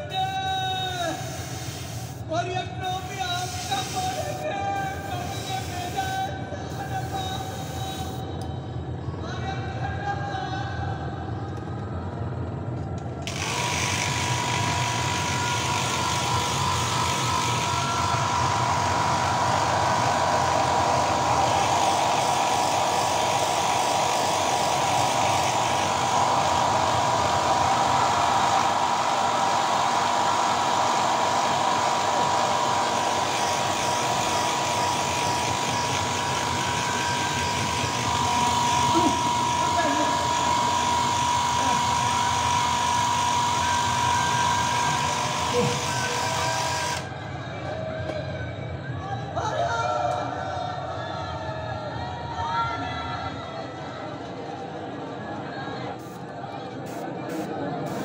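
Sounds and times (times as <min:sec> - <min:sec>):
electric motor whining: 0:13.2 - 0:47.1.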